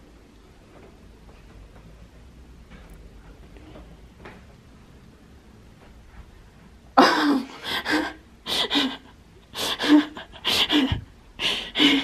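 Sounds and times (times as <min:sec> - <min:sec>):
person gasping: 0:07.0 - 0:12.0.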